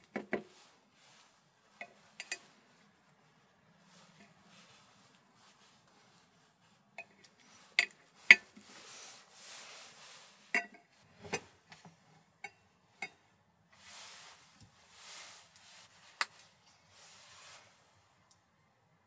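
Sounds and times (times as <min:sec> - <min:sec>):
spoon scraping a plate: 0:01.8 - 0:02.6.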